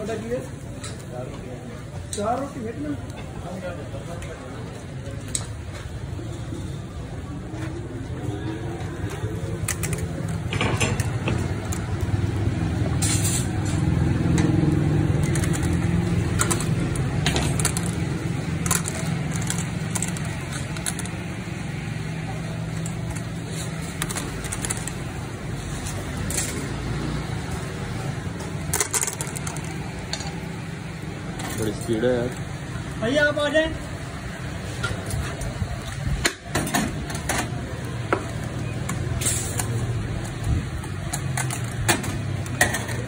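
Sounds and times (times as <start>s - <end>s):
metal skewers clinking and scraping: 9.1s - 26.8s, 28.4s - 30.5s, 38.8s - 43.0s.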